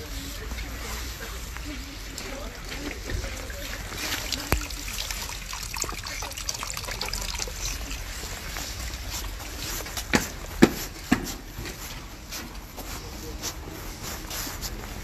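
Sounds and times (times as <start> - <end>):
water trickling from drainpipe: 1.2 - 10.1.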